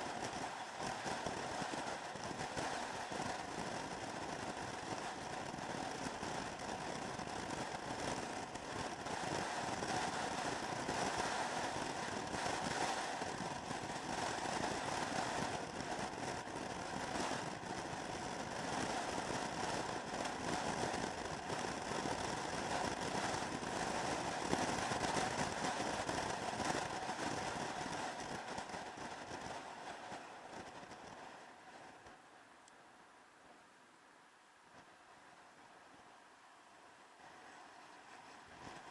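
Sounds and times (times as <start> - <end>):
motor scooter engine running: 0.0 - 31.1
wind rushing over microphone: 0.0 - 32.2.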